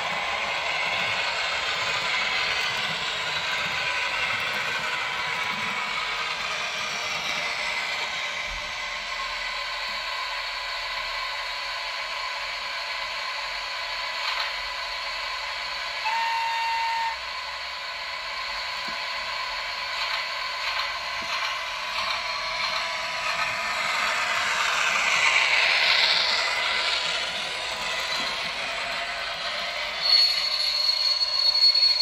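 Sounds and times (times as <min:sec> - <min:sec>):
model train motor hiss and whine: 0:00.0 - 0:32.0
short whistle tone: 0:16.0 - 0:17.2, 0:30.0 - 0:32.0.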